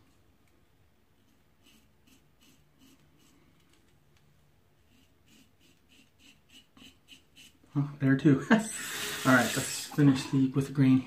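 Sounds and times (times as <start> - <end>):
razor scraping stubble: 1.6 - 3.3, 4.9 - 7.6, 8.8 - 10.2.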